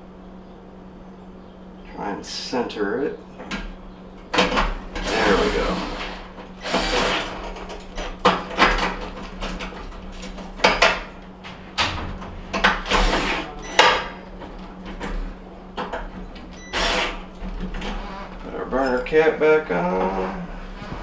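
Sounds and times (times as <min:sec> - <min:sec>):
cordless drill running: 0:05.0 - 0:07.4, 0:12.8 - 0:13.5, 0:16.6 - 0:17.3, 0:17.9 - 0:18.3.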